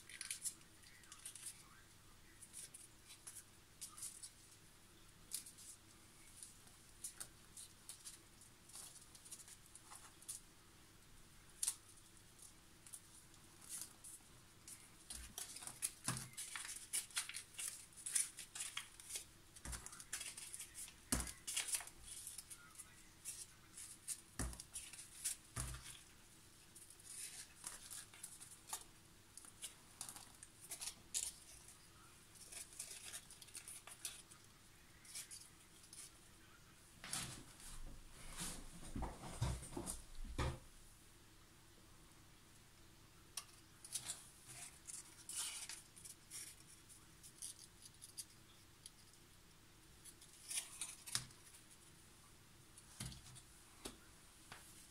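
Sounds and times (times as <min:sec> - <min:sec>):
paper crackling and rustling: 0:00.0 - 0:04.5, 0:11.6 - 0:36.2.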